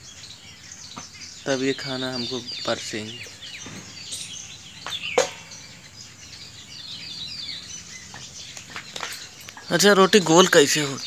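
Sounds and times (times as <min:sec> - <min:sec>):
birds chirping: 0:00.0 - 0:11.0
low rural background: 0:00.0 - 0:11.0
sharp knock: 0:04.8 - 0:05.5.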